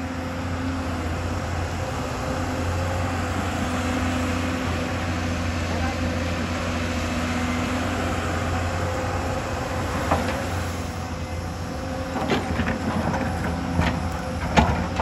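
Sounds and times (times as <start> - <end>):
excavator diesel engine running: 0.0 - 15.0
excavator bucket clanks: 12.2 - 15.0.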